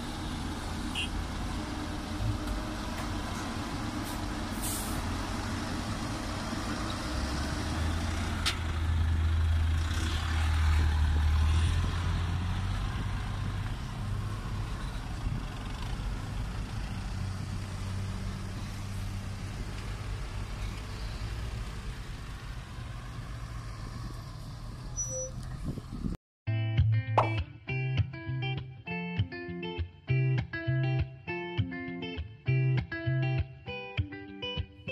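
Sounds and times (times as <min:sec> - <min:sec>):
truck diesel engine pulling away: 0:00.0 - 0:26.2.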